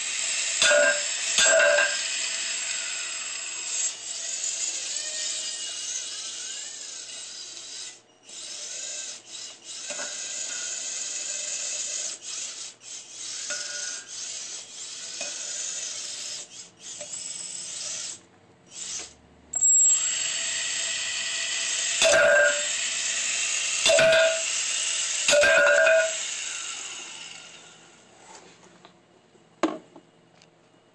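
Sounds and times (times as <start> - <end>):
saw blade whining: 0.0 - 28.1
saw grinding into wood: 21.7 - 23.2.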